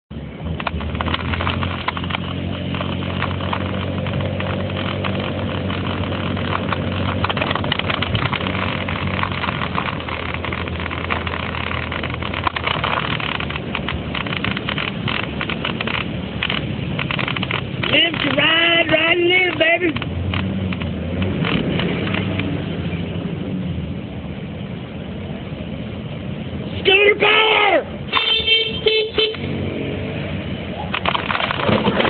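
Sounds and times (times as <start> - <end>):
motor scooter engine running: 0.6 - 18.7.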